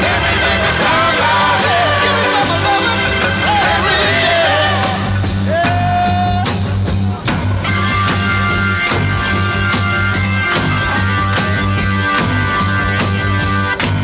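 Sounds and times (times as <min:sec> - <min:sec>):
singing: 0:00.0 - 0:06.6
rock music: 0:00.0 - 0:14.0.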